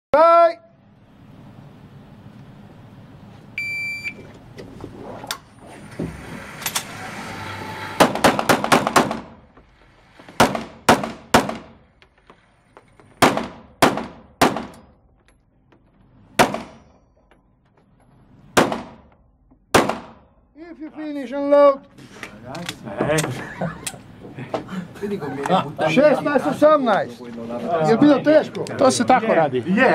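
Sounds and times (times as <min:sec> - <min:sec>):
shot timer beep: 0:03.6 - 0:04.2.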